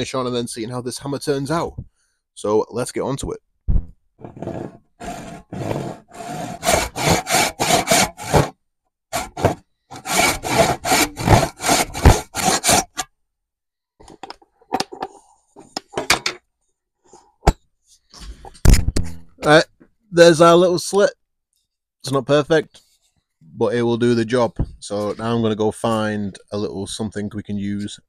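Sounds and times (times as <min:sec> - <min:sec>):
hand saw cutting wood: 0:04.3 - 0:13.1.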